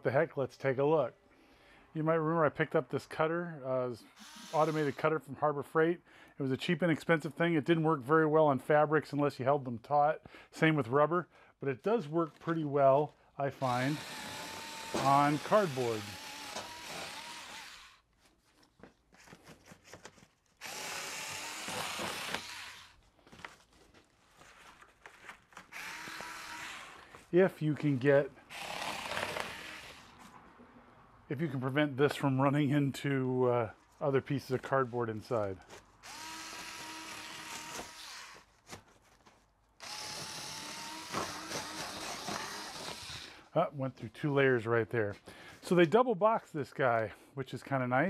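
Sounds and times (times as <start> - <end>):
electric cutter slicing cardboard: 4.1 - 5.0, 13.6 - 18.0, 20.6 - 23.0, 25.6 - 27.3, 28.5 - 30.2, 36.0 - 38.5, 39.8 - 43.4.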